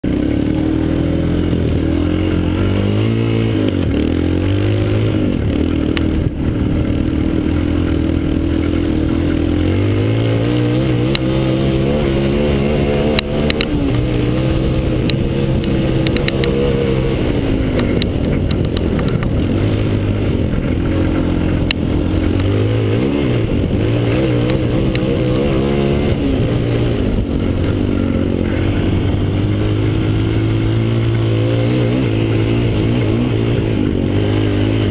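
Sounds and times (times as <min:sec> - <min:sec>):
quad engine revving: 0:00.0 - 0:34.9
sharp clicks: 0:13.0 - 0:14.2, 0:14.9 - 0:19.6.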